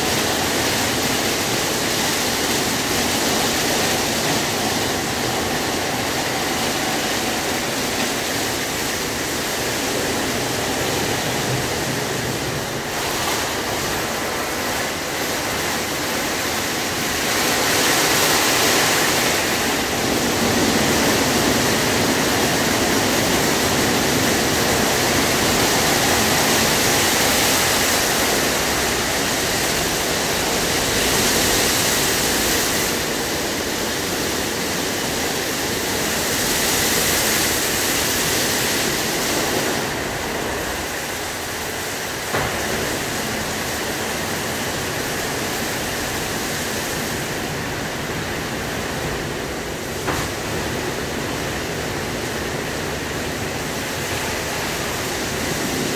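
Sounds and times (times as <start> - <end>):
car wash brushes and water spray: 0.0 - 55.9.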